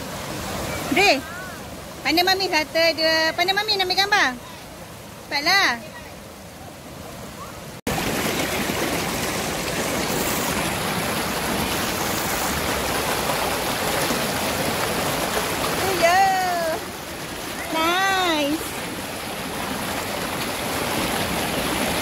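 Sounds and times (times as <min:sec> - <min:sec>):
river rushing over rocks: 0:04.6 - 0:22.0.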